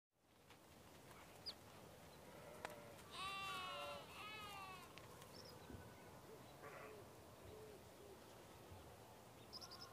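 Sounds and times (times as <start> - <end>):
faint background noise: 0.2 - 9.9
drawn-out animal calls: 2.4 - 4.9.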